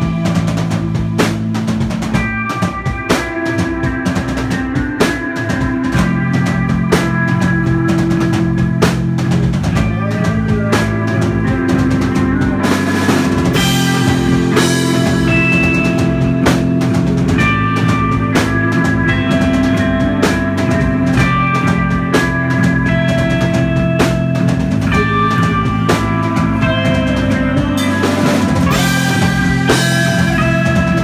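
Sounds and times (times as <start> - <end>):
bass chords: 0.0 - 31.0
drum kit beating: 0.0 - 31.0
electric guitar chords: 0.0 - 31.0.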